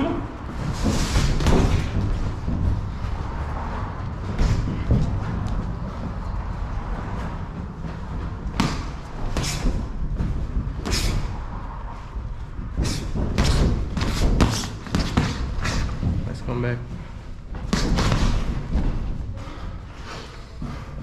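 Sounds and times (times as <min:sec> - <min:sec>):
steady low rumble: 0:00.0 - 0:14.4.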